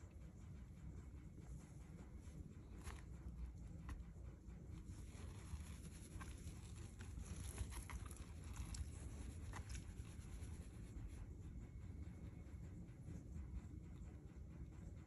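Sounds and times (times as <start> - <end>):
hand rubbing dog fur: 1.6 - 11.3.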